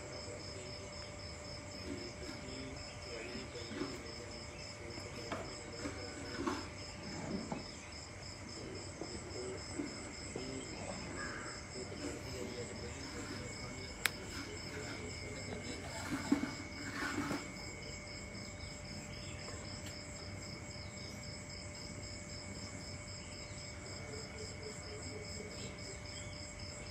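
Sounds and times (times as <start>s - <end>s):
insects trilling: 0.0s - 26.9s
sharp click: 14.0s - 14.2s.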